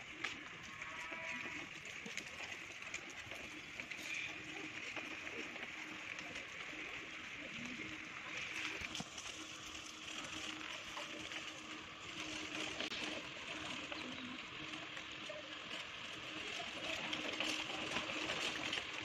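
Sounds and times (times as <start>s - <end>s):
faint bird calls: 3.4s - 6.1s.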